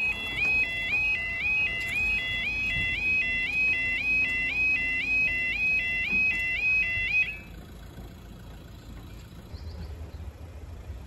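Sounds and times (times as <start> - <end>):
two-tone warbling crossing alarm: 0.0 - 7.7.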